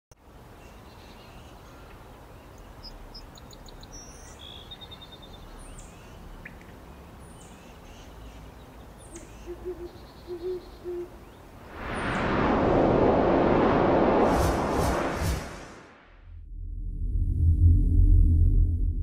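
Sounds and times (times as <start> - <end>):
low repeated bird call: 9.0 - 11.5
steady low rumble: 11.6 - 19.0.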